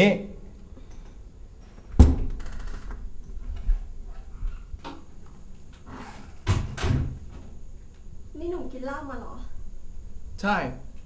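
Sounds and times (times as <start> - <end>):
door shutting with thud: 2.0 - 3.0, 5.9 - 7.5.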